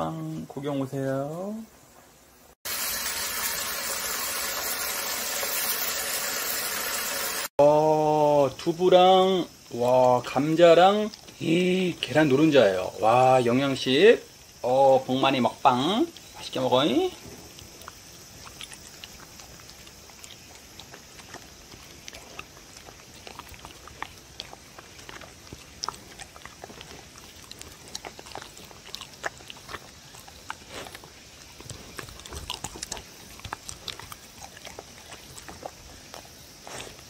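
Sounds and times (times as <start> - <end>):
dog licking and chewing: 16.1 - 37.0.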